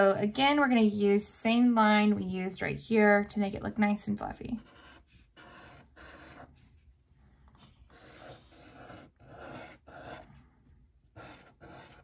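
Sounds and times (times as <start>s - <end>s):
marker scratching on paper: 4.6s - 7.0s, 7.7s - 10.4s, 11.1s - 12.0s.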